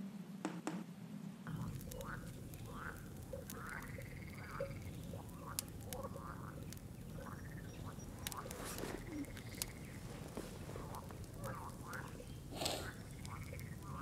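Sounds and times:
frogs croaking: 1.5s - 14.0s
low background rumble: 1.5s - 14.0s.

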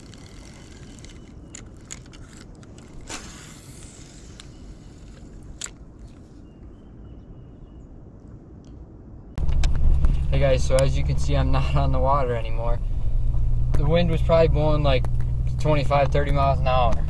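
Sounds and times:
gear clicking and scraping: 0.0s - 6.4s
wind rumbling on microphone: 0.0s - 17.0s.

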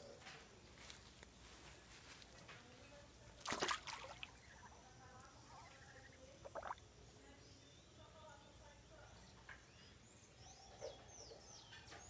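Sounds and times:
ducks splashing in water: 3.3s - 6.8s.

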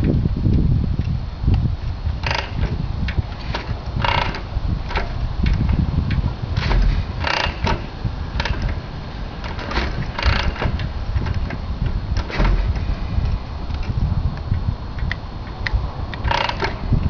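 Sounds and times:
engine turning over: 2.2s - 5.9s, 6.5s - 14.0s, 16.2s - 17.0s
motorcycle kick-start clanks: 2.2s - 13.2s, 16.2s - 17.0s.

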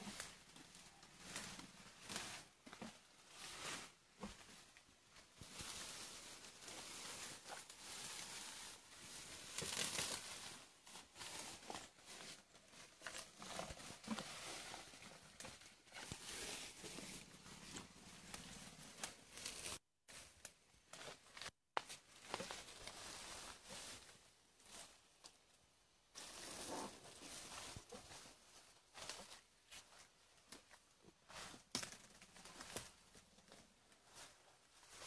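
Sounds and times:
elephant tearing foliage: 9.6s - 10.2s.

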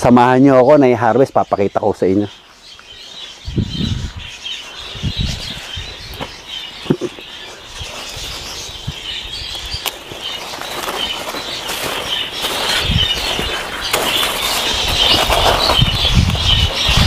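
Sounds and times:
small birds chirping: 0.0s - 17.0s
leaves rustling: 2.6s - 17.0s
low thuds of footsteps: 5.0s - 7.2s.

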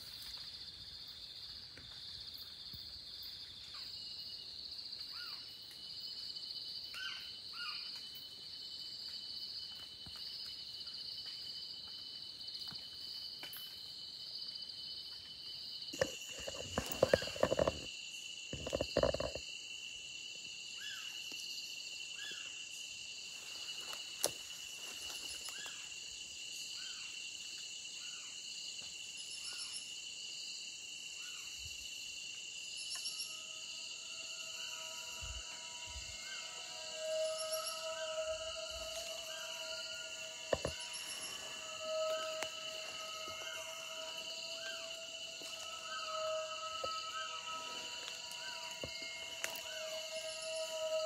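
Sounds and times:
night insects chirping: 0.0s - 51.0s
loud rustles and knocks: 16.0s - 17.9s, 18.6s - 19.4s.

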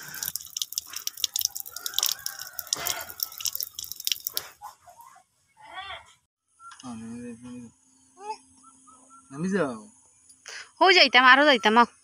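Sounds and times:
tap water splashing on concrete: 0.0s - 4.5s
hands washing under water: 0.0s - 4.7s
water dripping: 0.0s - 4.7s.

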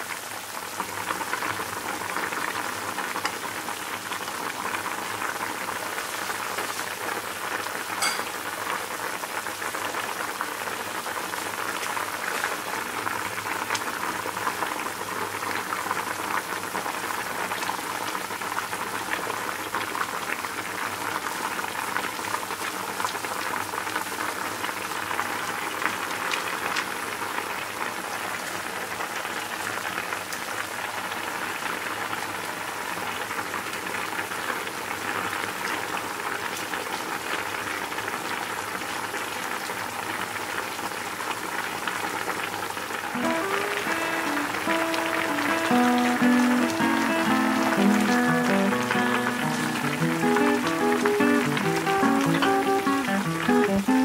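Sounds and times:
soup boiling and bubbling: 0.0s - 54.0s.

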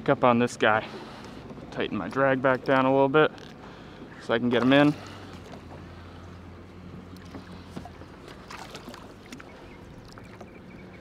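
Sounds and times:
fish splashing at water surface: 7.2s - 10.4s.

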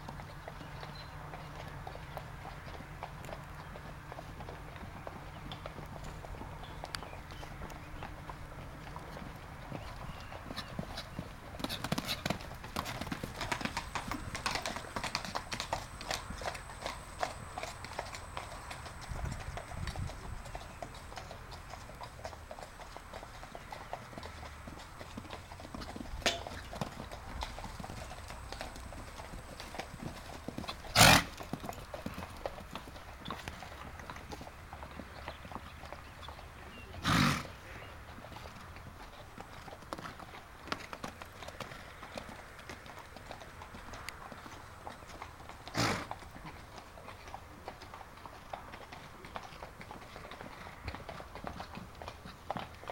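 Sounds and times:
horse hoofbeats on sand: 0.0s - 37.5s.

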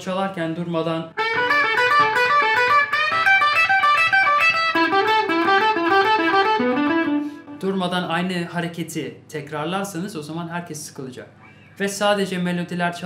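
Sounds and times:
electric guitar fast single notes: 1.2s - 7.6s.

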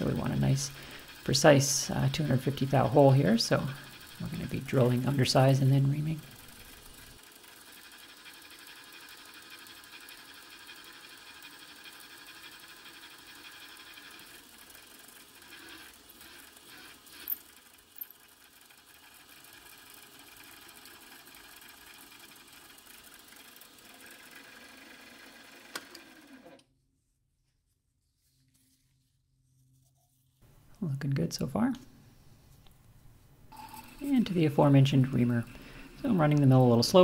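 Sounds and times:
drill boring through steel: 0.0s - 7.0s
mill spindle running: 0.0s - 26.6s, 33.5s - 37.0s.

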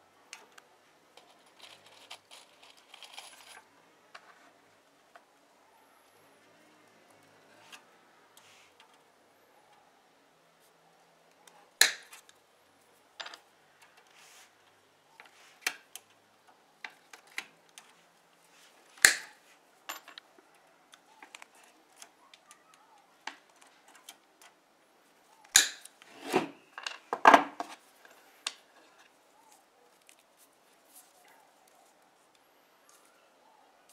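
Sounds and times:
metal tools clinking and clattering: 1.2s - 3.6s
wire cutters snapping: 11.8s - 12.4s, 19.0s - 19.4s, 25.5s - 26.0s
light clicks of tools and wire: 19.9s - 24.6s.

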